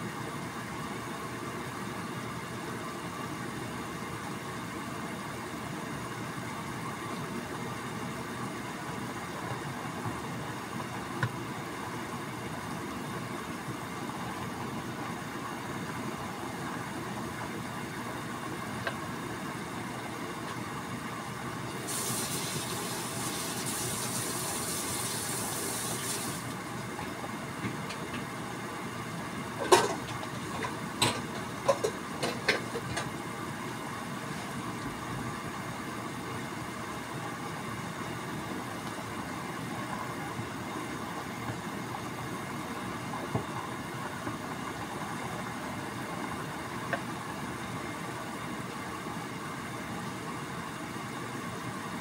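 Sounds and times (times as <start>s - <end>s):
water boiling in a skillet: 21.7s - 29.0s.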